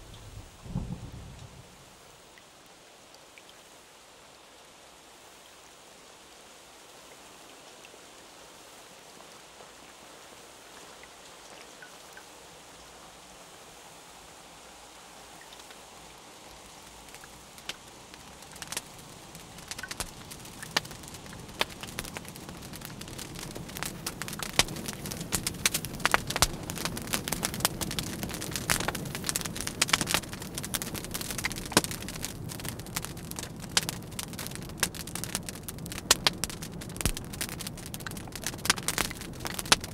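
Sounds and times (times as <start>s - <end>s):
low rumble: 0.0s - 2.0s
soft steady hiss: 0.0s - 39.9s
sharp crackles and pops: 16.4s - 39.9s.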